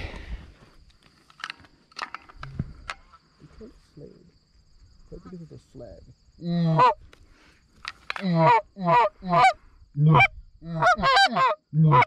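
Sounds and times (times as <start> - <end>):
goose honking: 6.6 - 7.0, 8.1 - 12.0.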